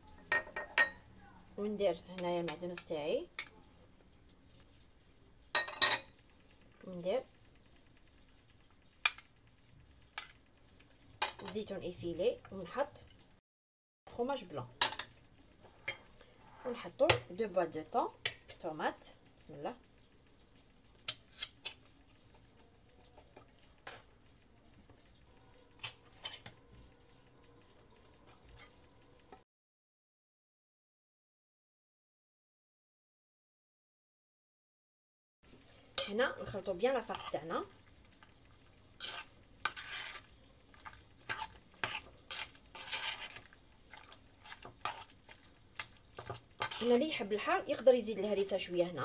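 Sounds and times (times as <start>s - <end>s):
metal utensil scraping glass bowl: 25.8s - 26.6s, 39.0s - 47.0s.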